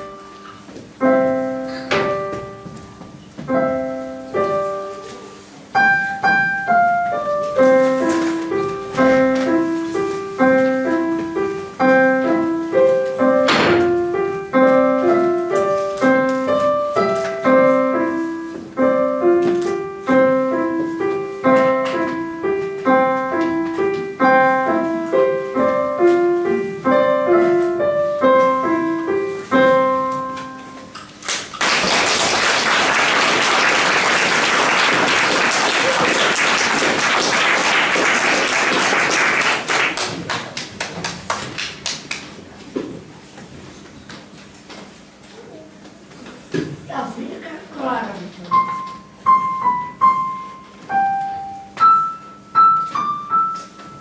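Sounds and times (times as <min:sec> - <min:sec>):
slow solo piano piece: 0:00.0 - 0:31.2, 0:48.5 - 0:54.0.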